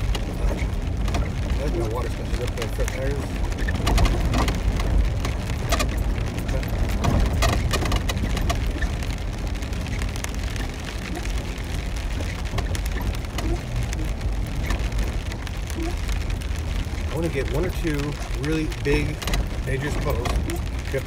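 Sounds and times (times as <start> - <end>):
vehicle and tyres droning: 0.0 - 21.0.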